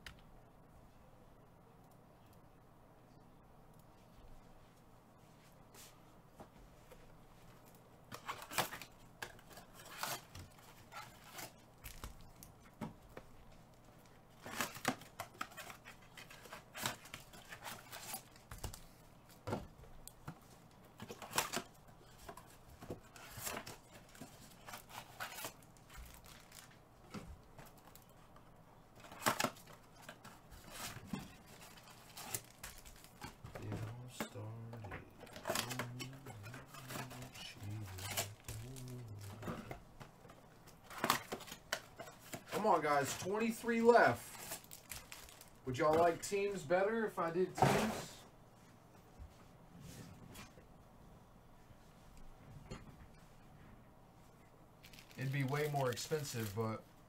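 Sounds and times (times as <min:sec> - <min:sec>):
faint low hum: 0:00.0 - 0:57.0
card packs being handled: 0:07.6 - 0:48.1, 0:54.8 - 0:56.8.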